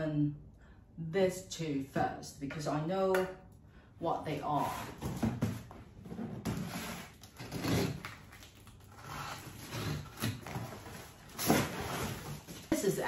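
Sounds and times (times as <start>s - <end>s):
box cutter slicing packing tape: 6.6s - 8.3s.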